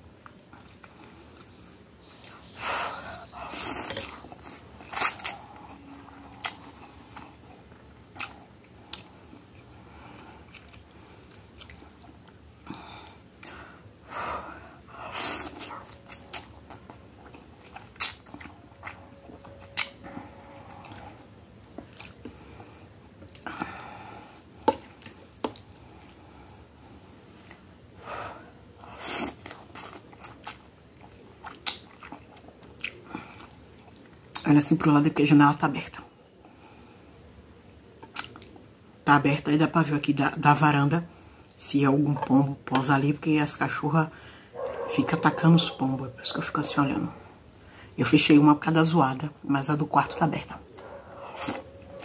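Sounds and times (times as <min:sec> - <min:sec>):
chewing: 0:03.8 - 0:12.4, 0:15.4 - 0:26.7, 0:27.3 - 0:27.7, 0:29.2 - 0:34.4, 0:38.0 - 0:38.6, 0:50.7 - 0:52.0.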